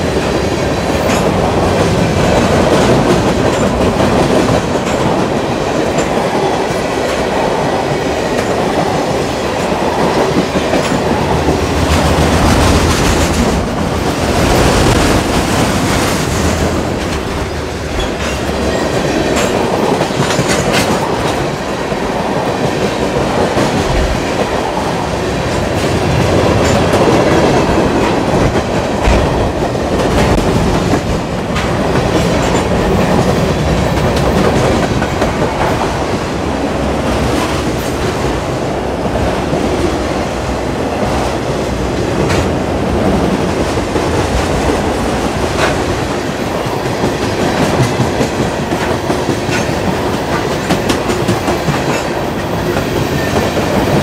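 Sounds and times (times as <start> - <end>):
train wheels on rails: 0.0 - 54.0.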